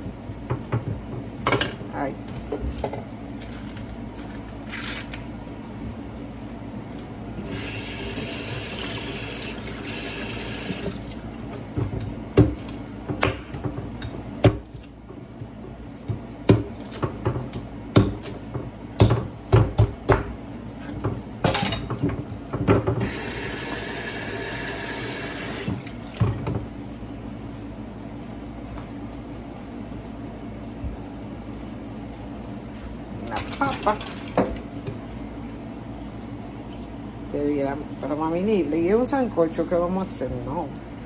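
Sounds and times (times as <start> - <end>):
water running from tap: 7.4 - 11.6, 23.0 - 26.6.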